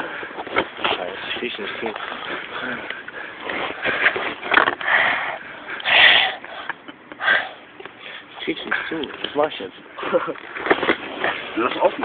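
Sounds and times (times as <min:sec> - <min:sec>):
man snickering and sniffing: 0:10.0 - 0:10.4.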